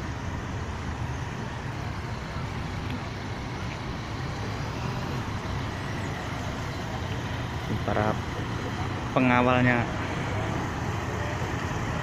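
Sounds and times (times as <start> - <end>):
cars driving past: 0.0 - 12.0.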